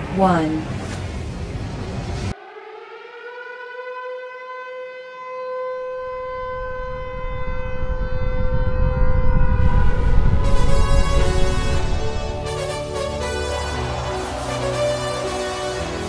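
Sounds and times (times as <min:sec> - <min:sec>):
rising siren-like tone: 0:02.3 - 0:16.0
low rumble: 0:06.1 - 0:12.9.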